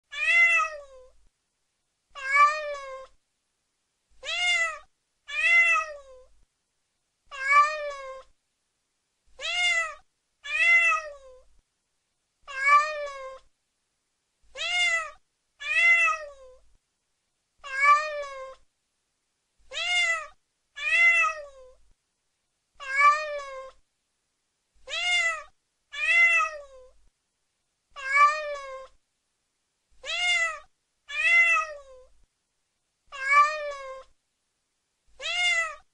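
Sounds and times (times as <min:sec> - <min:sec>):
cat meowing: 0:00.1 - 0:01.2, 0:02.2 - 0:03.2, 0:04.2 - 0:06.3, 0:07.3 - 0:08.3, 0:09.4 - 0:11.5, 0:12.5 - 0:13.5, 0:14.5 - 0:16.6, 0:17.6 - 0:18.6, 0:19.7 - 0:21.8, 0:22.8 - 0:23.8, 0:24.8 - 0:27.0, 0:28.0 - 0:29.0, 0:30.0 - 0:32.1, 0:33.1 - 0:34.2, 0:35.2 - 0:35.9.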